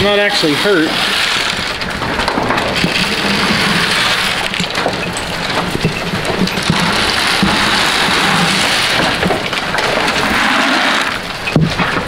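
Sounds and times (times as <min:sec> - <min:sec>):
feed pellets rattling in plastic trough: 0:01.0 - 0:12.0.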